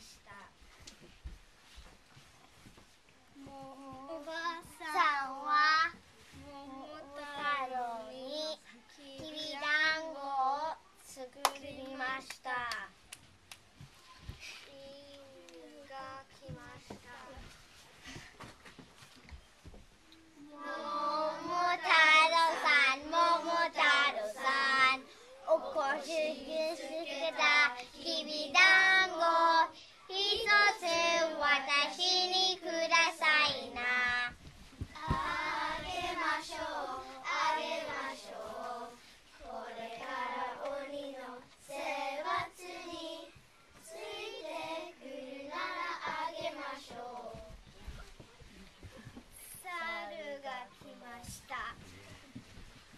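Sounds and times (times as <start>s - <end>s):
children singing in unison: 20.5s - 34.2s, 34.9s - 47.5s.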